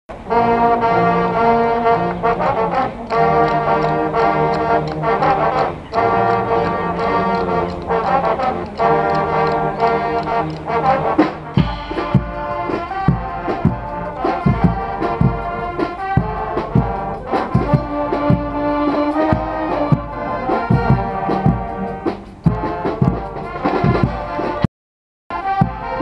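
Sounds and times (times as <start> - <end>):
brass band playing loud chords: 0.1 - 24.7, 25.3 - 26.0
drum beats: 2.0 - 24.7, 25.3 - 26.0.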